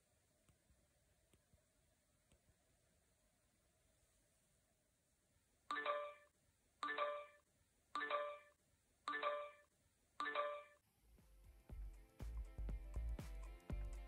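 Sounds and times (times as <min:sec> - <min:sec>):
smartwatch notification chime: 0:05.7 - 0:06.2, 0:06.8 - 0:07.4, 0:08.0 - 0:08.5, 0:09.1 - 0:09.6, 0:10.2 - 0:10.8
music: 0:11.1 - 0:14.0.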